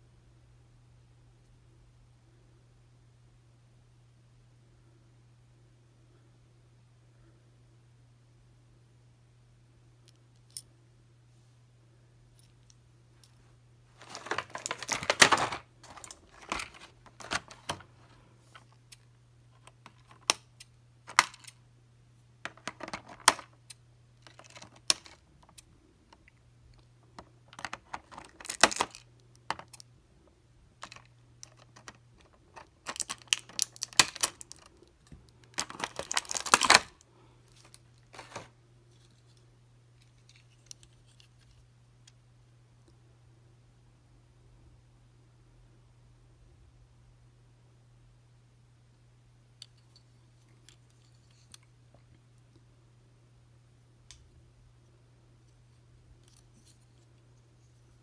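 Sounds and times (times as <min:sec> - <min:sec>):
plastic packaging crinkling and clicking: 0:14.0 - 0:19.0, 0:24.2 - 0:26.2, 0:27.2 - 0:29.9, 0:30.8 - 0:38.5.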